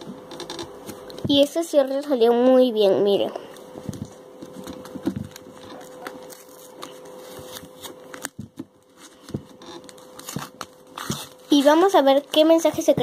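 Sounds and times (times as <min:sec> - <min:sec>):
small crackles and taps: 0:03.6 - 0:10.8
paper rustling: 0:03.8 - 0:13.0.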